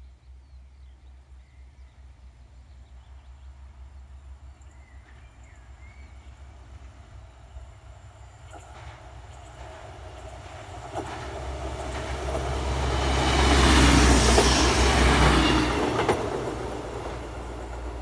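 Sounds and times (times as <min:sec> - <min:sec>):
railcar engine rumble: 0:00.0 - 0:18.0
train wheel noise: 0:06.6 - 0:18.0
wheels clicking over rail joints: 0:15.5 - 0:18.0.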